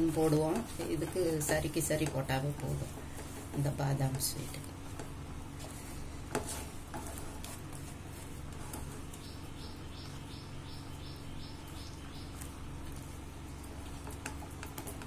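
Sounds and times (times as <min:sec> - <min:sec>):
spatula scraping a pan: 0:00.0 - 0:09.3
steady low hum: 0:00.0 - 0:15.0.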